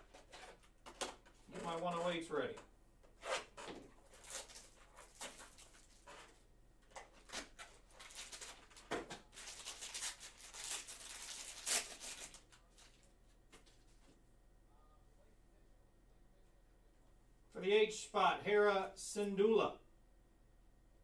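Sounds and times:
foil wrapper crinkling and tearing: 4.0 - 6.4, 7.1 - 13.1.

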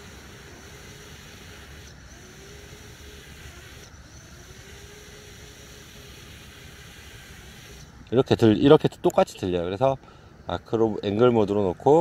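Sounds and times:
drone motors whining: 0.0 - 8.1
low background hiss and rumble: 0.0 - 12.0.

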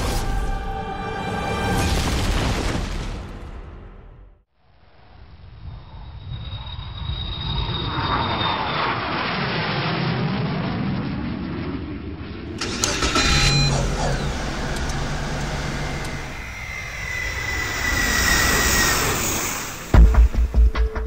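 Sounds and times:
engine whine: 12.4 - 20.7
music beat with heavy thumps: 19.9 - 21.0.

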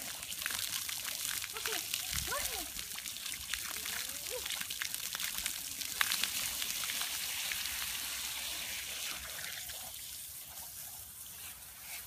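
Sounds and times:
sprinkler water hissing: 0.0 - 12.0.

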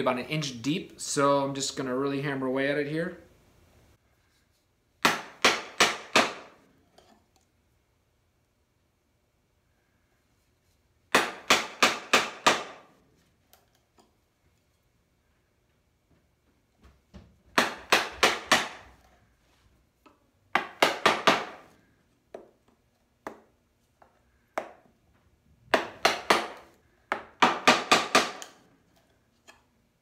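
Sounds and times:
chisel struck into wood: 5.0 - 6.5, 11.1 - 12.8, 17.6 - 18.9, 20.5 - 21.7, 25.7 - 28.6.

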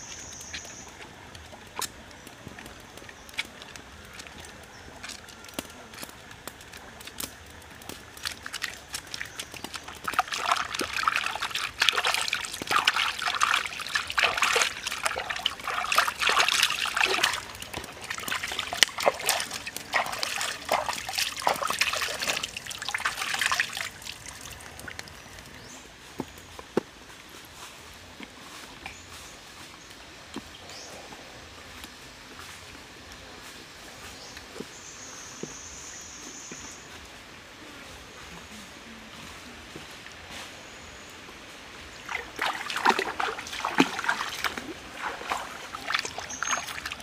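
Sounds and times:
stream trickling: 0.0 - 27.3, 28.0 - 47.0
hands splashing in water: 7.9 - 25.2, 42.1 - 47.0.

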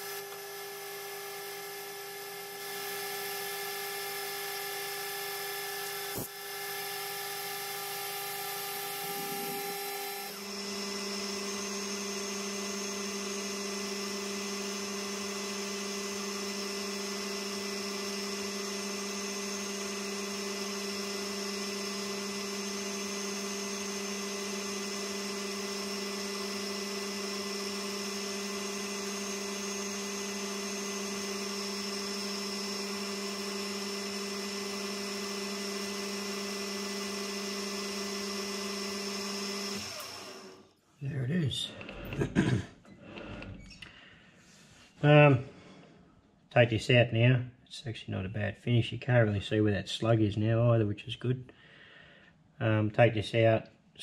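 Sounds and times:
metal lathe humming with whine: 0.0 - 40.6.

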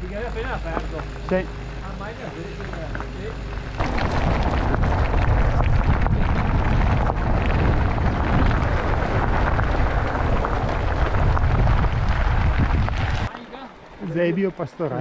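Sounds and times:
bike rattles and clicks: 0.0 - 13.4
tyres crunching on gravel: 0.0 - 14.6
wind buffeting microphone: 3.4 - 13.3.

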